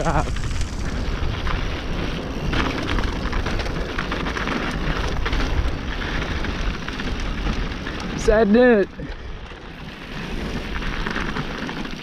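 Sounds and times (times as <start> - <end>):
bike knocks and rattles: 0.0 - 12.0
bike tyres crunching over dirt: 0.0 - 12.0
wind rumble on microphone: 0.0 - 12.0.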